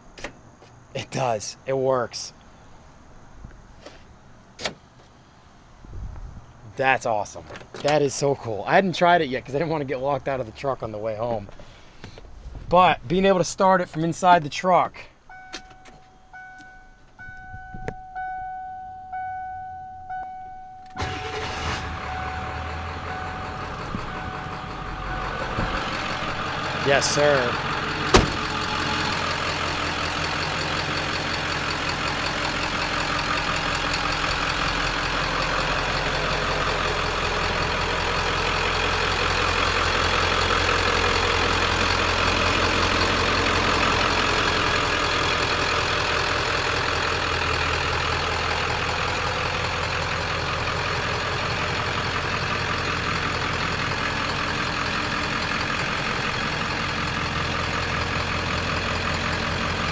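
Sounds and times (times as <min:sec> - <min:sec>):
diesel engine idling: 0:20.9 - 0:59.9.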